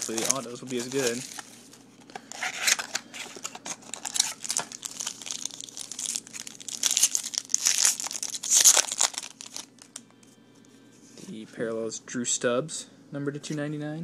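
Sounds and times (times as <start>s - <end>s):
plastic wrapping crinkling and tearing: 0.0s - 10.0s.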